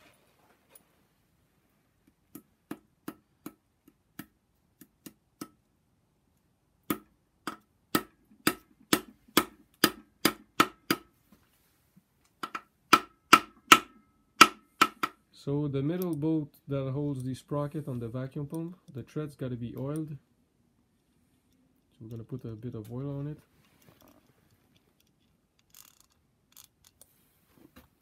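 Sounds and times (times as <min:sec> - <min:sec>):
hammer tapping metal: 0:12.4 - 0:15.2.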